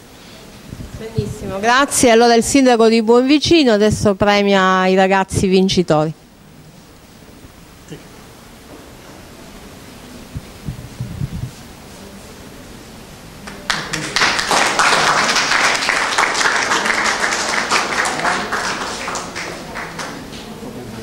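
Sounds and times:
group of people applauding: 13.4s - 21.0s.

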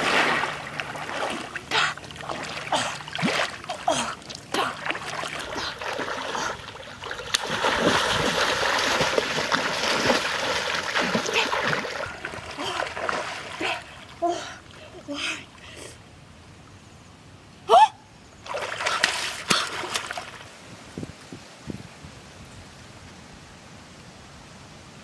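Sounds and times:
water splashing from swimming: 0.0s - 15.8s, 18.4s - 20.6s.

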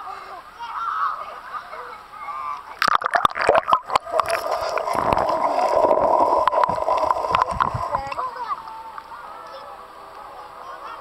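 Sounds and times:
muffled underwater gurgling: 2.8s - 8.3s
water splashing: 2.8s - 8.7s.

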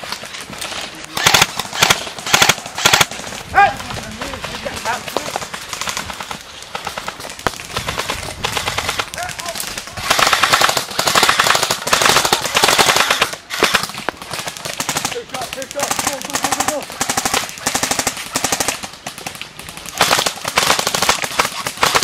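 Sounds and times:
airsoft guns firing full-auto: 0.0s - 22.0s.

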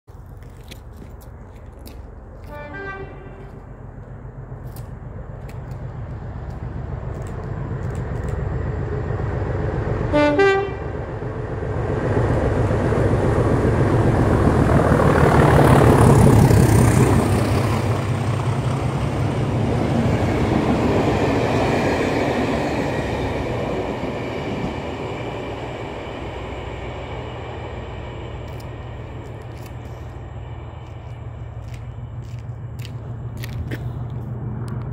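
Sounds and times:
diesel locomotive engine rumbling: 0.1s - 34.9s
train coaches running by: 0.1s - 34.9s
train horn: 2.4s - 3.6s, 10.1s - 11.0s.

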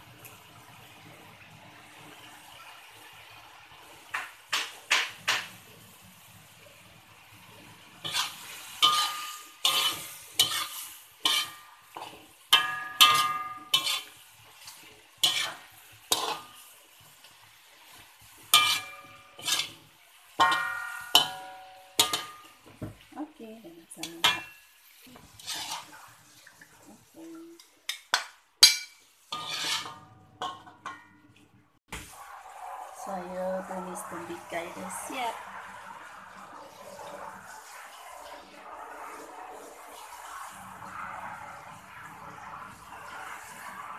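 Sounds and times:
food sizzling: 0.0s - 43.9s
metal spatula scraping a wok: 8.0s - 16.7s, 17.8s - 22.7s, 24.0s - 26.2s, 28.6s - 31.0s.

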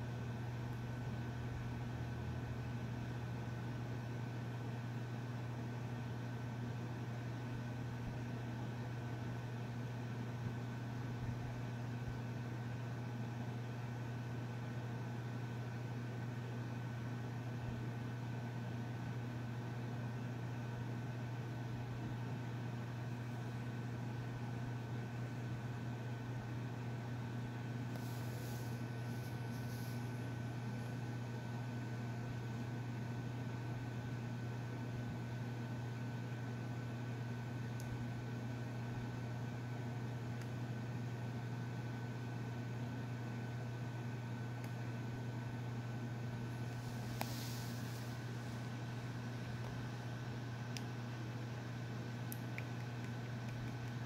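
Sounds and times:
hiss: 28.0s - 30.1s, 46.8s - 48.2s.

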